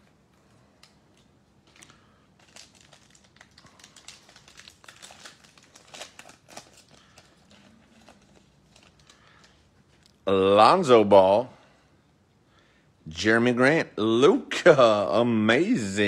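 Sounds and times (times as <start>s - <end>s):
wrapper crinkling and tearing: 0.8s - 10.2s.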